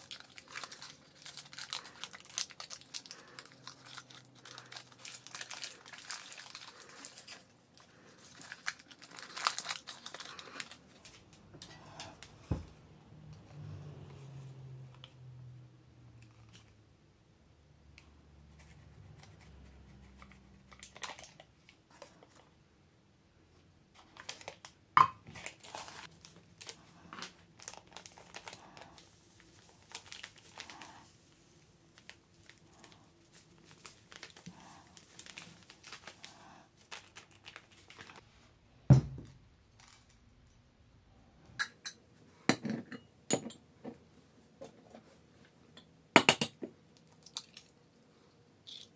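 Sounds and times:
paper and plastic crinkling: 0.0 - 12.6, 20.2 - 22.5, 23.9 - 38.3.

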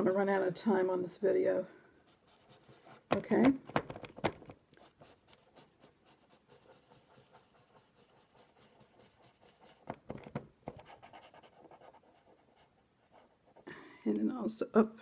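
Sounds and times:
glue pen scratching on paper: 2.1 - 3.2, 4.6 - 10.1, 10.7 - 13.7.

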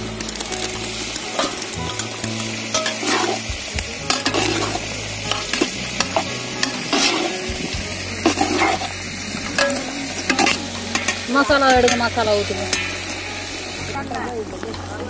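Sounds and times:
gravy sizzling and bubbling: 0.0 - 15.0
ladle scraping metal pot: 1.3 - 3.5, 4.1 - 7.6, 8.2 - 13.8.

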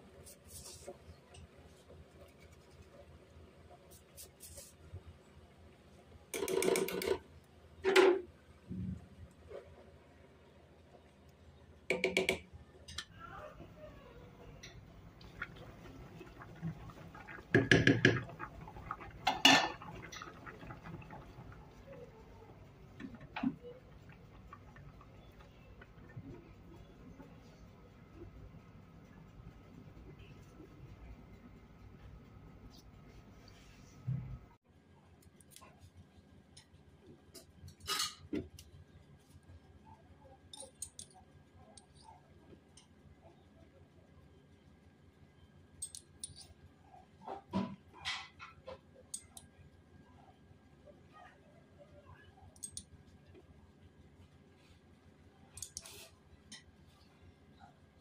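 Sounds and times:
pots and utensils clattering: 14.6 - 22.1, 37.8 - 38.4, 47.4 - 48.9.

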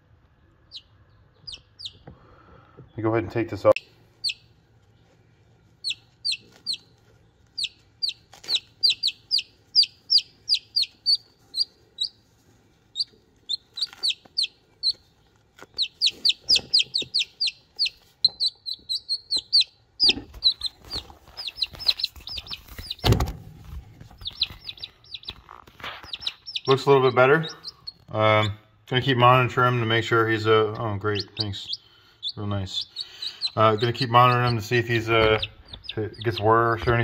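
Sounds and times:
chick peeping: 0.4 - 23.3, 24.0 - 37.0
rustling: 4.0 - 18.9, 20.0 - 26.8
thump: 23.0 - 23.5.

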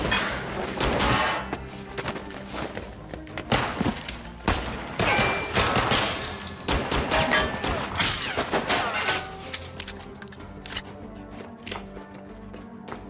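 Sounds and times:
tense background music: 0.0 - 13.0
pistol gunshots: 3.5 - 8.1.

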